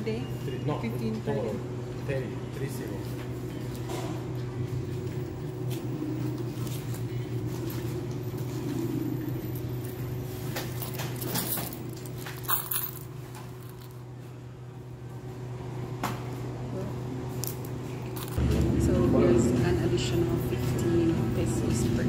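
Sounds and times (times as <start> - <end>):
small objects clicking and jingling: 10.8 - 14.0.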